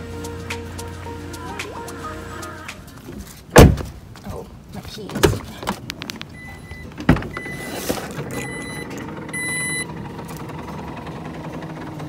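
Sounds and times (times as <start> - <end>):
thump: 3.5 - 4.0
car electronic warning beeps: 6.4 - 9.9.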